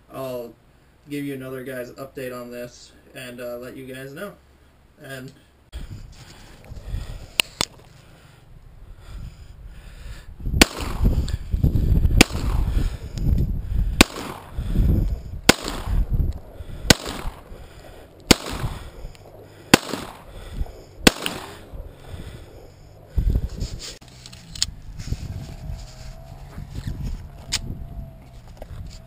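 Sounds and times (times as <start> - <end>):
pistol shots with low rumble: 10.6 - 11.4, 12.1 - 13.0, 14.0 - 22.6.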